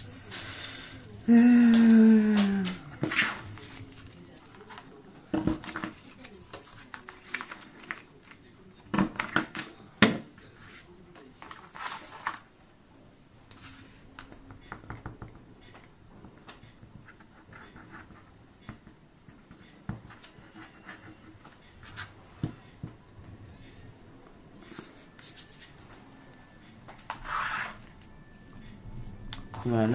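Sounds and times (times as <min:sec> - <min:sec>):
paper rustling: 0:05.6 - 0:08.4, 0:10.6 - 0:12.5.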